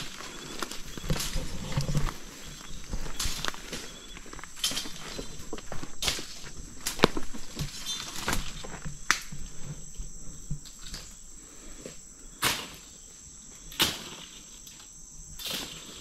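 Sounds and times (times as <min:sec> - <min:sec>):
footsteps in dry brush: 0:00.0 - 0:11.0
insects chirring: 0:00.0 - 0:16.0.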